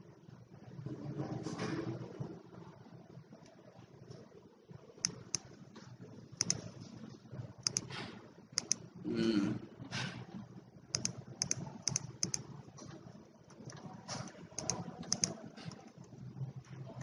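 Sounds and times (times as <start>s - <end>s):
computer keyboard typing: 5.0s - 5.6s, 6.4s - 6.7s, 7.6s - 7.9s, 8.6s - 8.8s, 10.9s - 12.5s, 13.5s - 16.1s.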